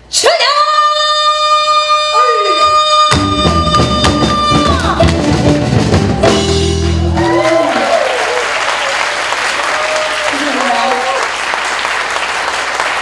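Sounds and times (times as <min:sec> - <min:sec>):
person singing long high note: 0:00.8 - 0:05.0
band with drum kit and bass: 0:02.6 - 0:08.1
applause: 0:06.8 - 0:13.0.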